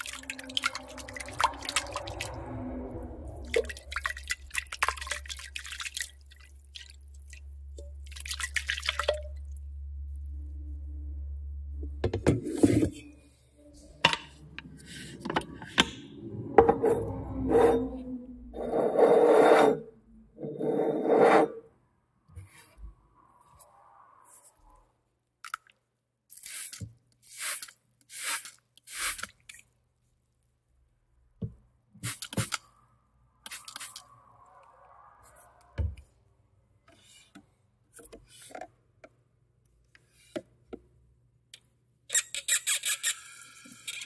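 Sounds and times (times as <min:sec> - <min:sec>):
low hum: 0:00.0 - 0:04.6, 0:09.4 - 0:12.1, 0:12.9 - 0:18.8.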